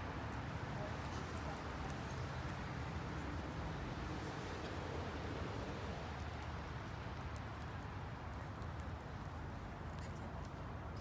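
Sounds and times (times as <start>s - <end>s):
faint light ticks: 6.0s - 11.0s.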